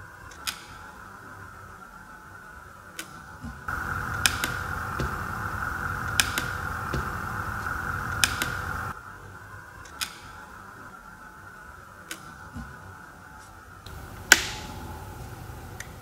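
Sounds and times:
steady blower hiss: 3.7s - 9.0s, 13.9s - 16.0s.

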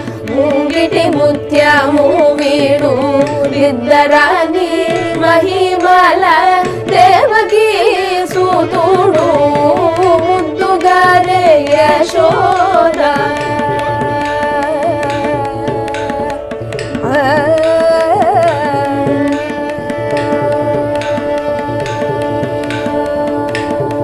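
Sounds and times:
mridangam drumming: 0.0s - 24.0s
violin: 0.0s - 24.0s
group vocals singing: 0.3s - 13.8s.

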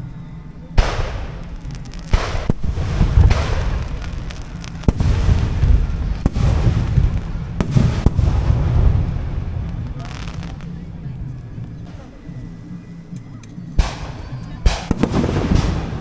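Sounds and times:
continuous low rumble: 0.0s - 16.0s
firework shells bursting: 0.8s - 10.9s, 13.8s - 16.0s.

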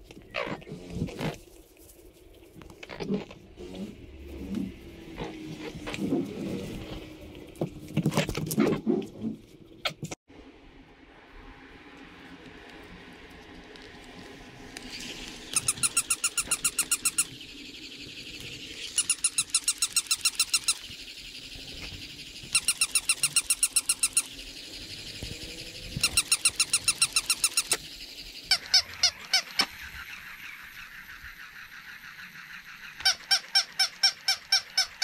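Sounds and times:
toy dog electronic high-pitched chirps: 15.5s - 17.3s, 18.8s - 20.9s, 22.5s - 24.4s, 26.0s - 27.8s.

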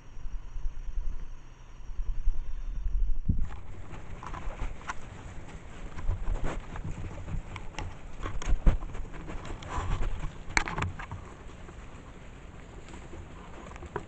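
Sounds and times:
animal scratching camera: 3.4s - 14.0s
rustling in leaf litter: 3.4s - 14.0s.

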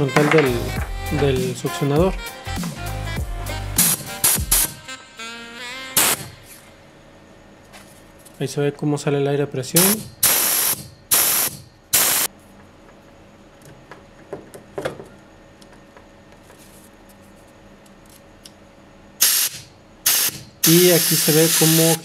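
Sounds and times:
compressed air blasts hissing: 3.7s - 4.8s, 6.0s - 6.6s, 9.8s - 12.3s, 19.2s - 22.0s.

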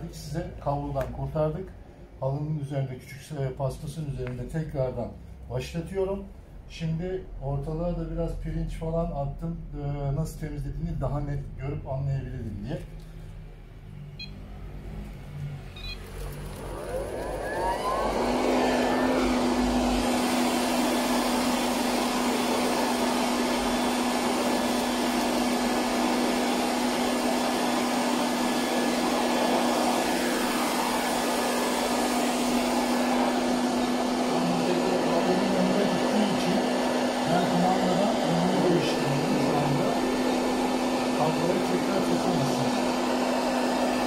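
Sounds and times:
robot vacuum cleaner humming: 14.6s - 44.0s.

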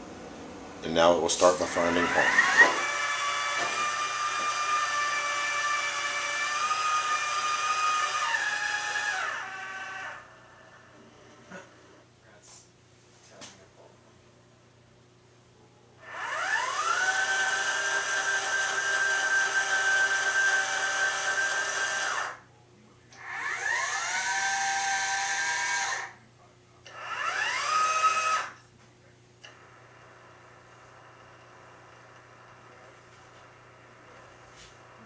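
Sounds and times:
telescope motor whine: 1.4s - 11.4s, 16.0s - 22.4s, 23.2s - 26.1s, 26.9s - 28.6s, 29.5s - 35.0s.

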